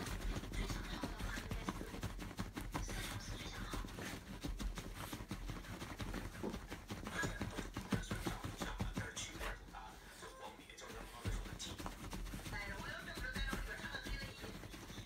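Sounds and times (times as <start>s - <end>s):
dog digging at fabric: 0.0s - 15.0s
fabric rustling and scratching: 0.0s - 15.0s.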